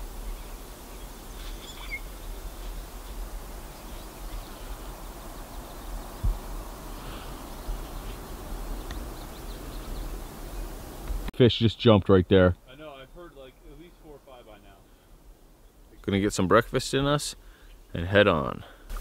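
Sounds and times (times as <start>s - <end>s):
low background rumble and hiss: 0.0s - 19.0s
faint bird chirps: 0.2s - 11.1s
low thump: 6.2s - 6.5s.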